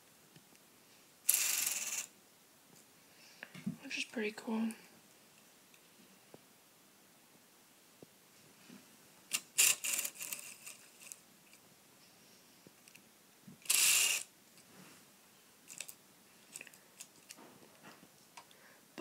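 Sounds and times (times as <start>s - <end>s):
plastic clicks and rattles: 15.7s - 17.4s.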